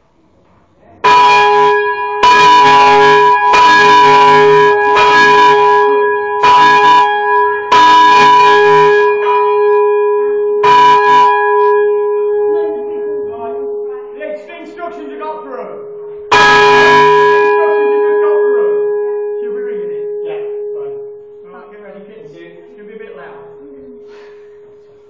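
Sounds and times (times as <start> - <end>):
bell hum ringing on: 1.0 - 25.0
church bell strikes: 1.0 - 25.0.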